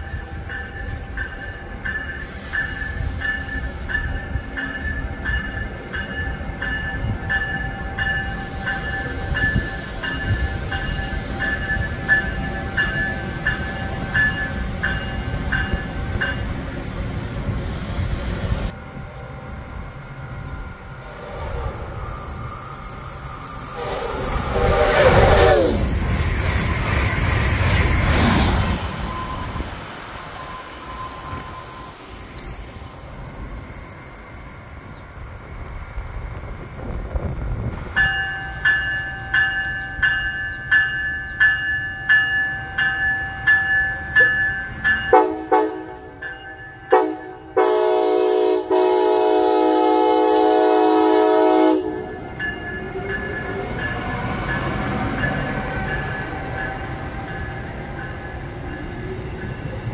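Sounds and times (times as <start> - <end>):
locomotive bell dinging: 0.0 - 16.8, 28.9 - 32.7, 38.0 - 48.2, 51.2 - 59.9
train passing with loud rumble: 0.0 - 59.9
train horn: 23.6 - 26.0, 45.1 - 46.2, 46.9 - 52.3.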